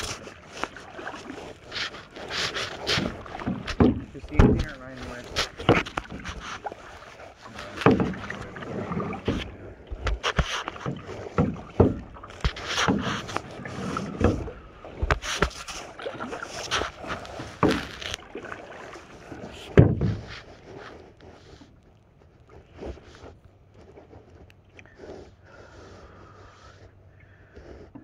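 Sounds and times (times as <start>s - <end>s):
wood knocking against hull: 0.0s - 20.5s
paddle splashes: 0.0s - 28.0s.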